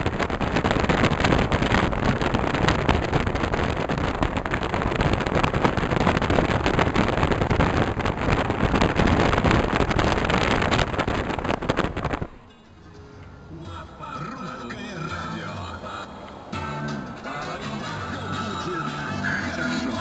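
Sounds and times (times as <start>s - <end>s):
wind buffeting microphone: 0.0s - 13.5s
car wind and road noise: 0.0s - 20.0s.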